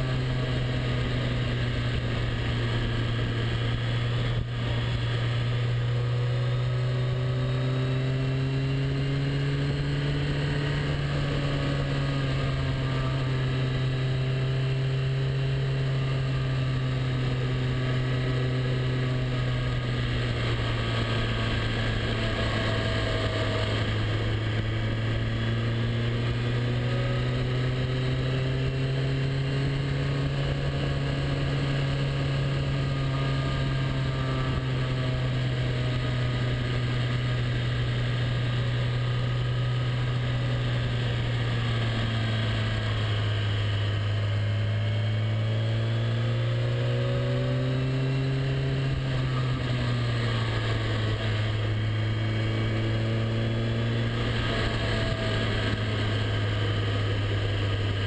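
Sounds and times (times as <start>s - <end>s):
motorcycle engine cruising: 0.0s - 58.0s
wind and road noise: 0.0s - 58.0s.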